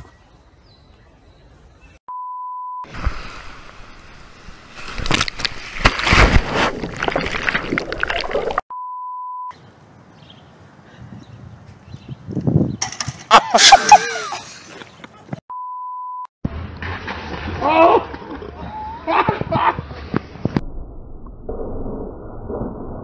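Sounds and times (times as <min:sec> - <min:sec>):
electronic beep: 0:08.7 - 0:09.6, 0:15.5 - 0:16.3.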